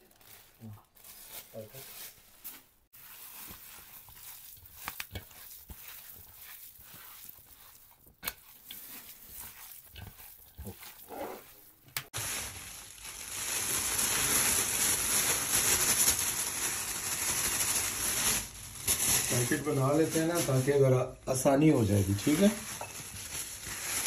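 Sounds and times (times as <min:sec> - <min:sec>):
plastic bag rustling: 0:00.0 - 0:24.0
hands squishing minced meat: 0:00.2 - 0:13.1.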